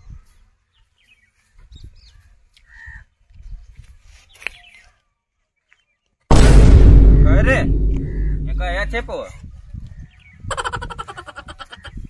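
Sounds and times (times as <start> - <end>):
footsteps on dry earth: 1.0 - 6.0.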